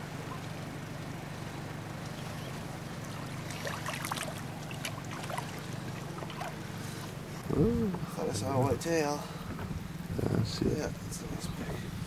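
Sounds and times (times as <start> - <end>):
steady low hum: 0.0 - 12.0
water splashing and trickling: 1.9 - 7.4
small splashes and drips: 3.0 - 7.2.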